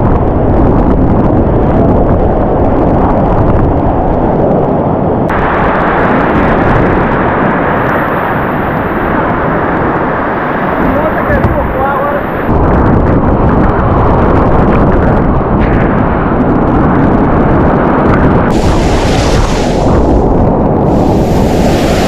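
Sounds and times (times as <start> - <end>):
whitewater rapids rushing: 18.5 - 20.2, 20.9 - 22.0.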